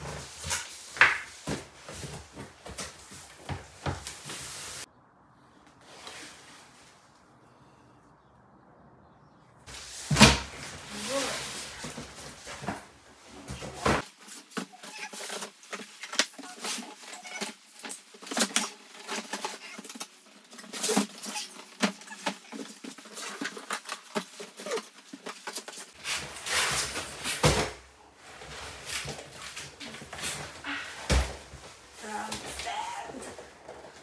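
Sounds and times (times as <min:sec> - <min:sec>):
cardboard scraping and rustling: 0:09.7 - 0:34.0.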